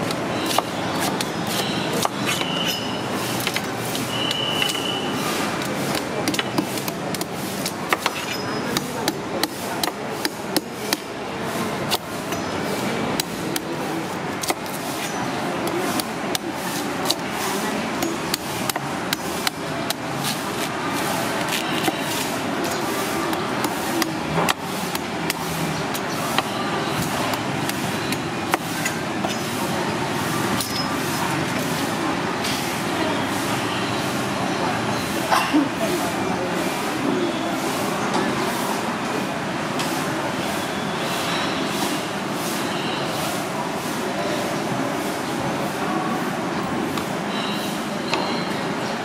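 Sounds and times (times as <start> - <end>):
steady background noise: 0.0 - 49.0
knife chopping coconut husk: 0.1 - 4.9, 5.8 - 11.1, 13.1 - 13.8, 14.4 - 29.4.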